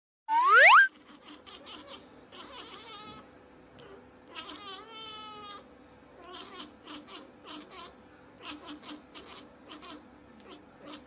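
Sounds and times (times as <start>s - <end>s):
cat meowing: 6.2s - 11.0s.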